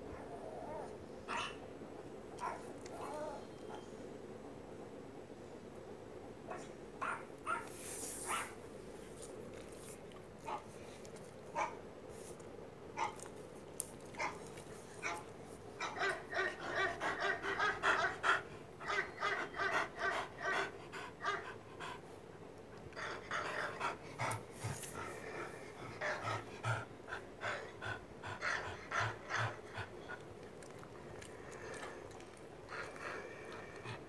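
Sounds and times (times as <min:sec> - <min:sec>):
dog panting: 0:14.2 - 0:34.0.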